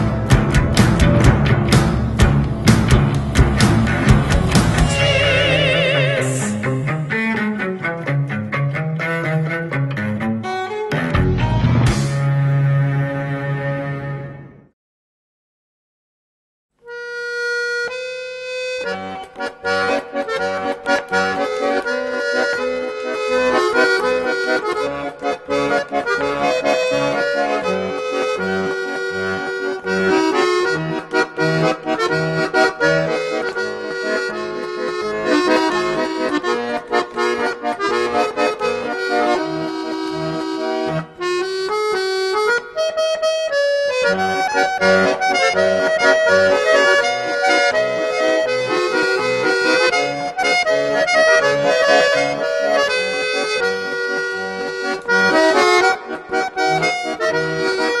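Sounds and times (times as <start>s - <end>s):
instrumental music with bass beat: 0.0s - 12.7s.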